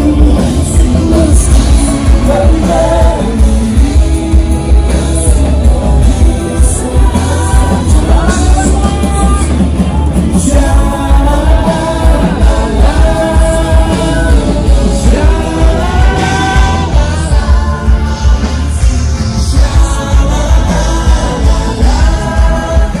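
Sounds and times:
lead singer singing: 0:00.0 - 0:23.0
rock band playing: 0:00.0 - 0:23.0.

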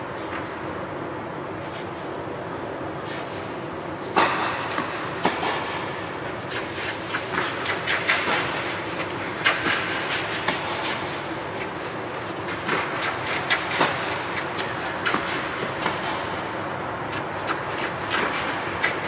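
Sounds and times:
racket hitting tennis ball: 0:04.0 - 0:19.0.

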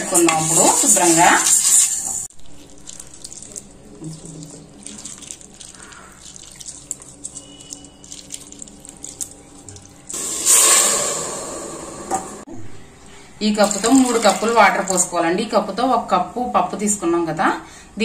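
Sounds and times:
hand swishing lentils in water: 0:00.4 - 0:09.9
water pouring into a pot: 0:13.6 - 0:15.1.

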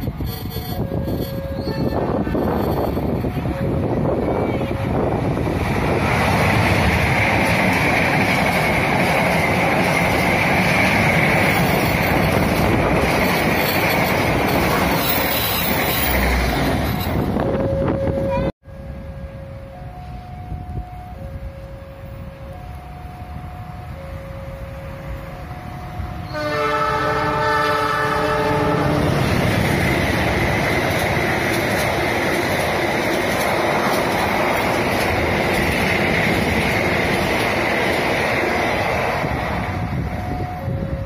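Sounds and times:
train wheels clacking on rails: 0:04.6 - 0:17.4, 0:28.9 - 0:40.8
locomotive horn blast: 0:26.2 - 0:29.3.

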